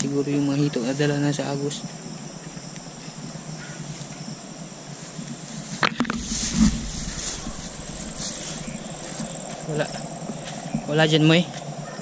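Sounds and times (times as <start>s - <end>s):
crickets chirring: 0.0s - 12.0s
rustling through tall grass: 2.9s - 10.8s
low rumble: 6.1s - 10.4s.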